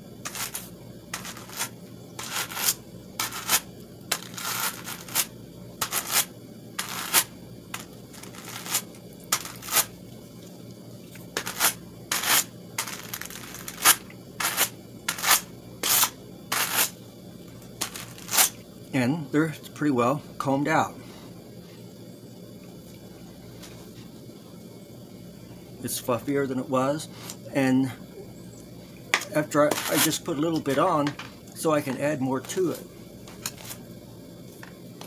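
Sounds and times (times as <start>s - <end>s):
hand carders scratching through wool: 0.2s - 9.9s, 11.4s - 17.0s, 17.8s - 18.6s, 29.6s - 30.8s.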